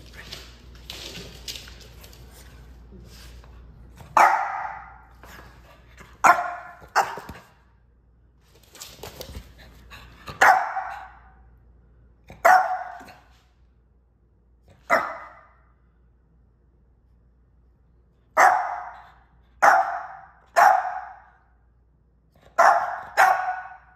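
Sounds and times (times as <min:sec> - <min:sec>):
puppy barking: 0:04.2 - 0:05.0, 0:06.2 - 0:07.4, 0:10.3 - 0:11.3, 0:12.3 - 0:13.2, 0:14.8 - 0:15.6, 0:18.4 - 0:21.4, 0:22.5 - 0:23.9.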